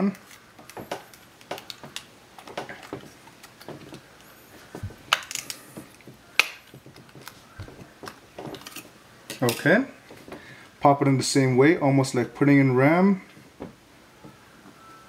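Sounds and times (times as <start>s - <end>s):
sharp plastic snaps: 5.1s - 9.5s.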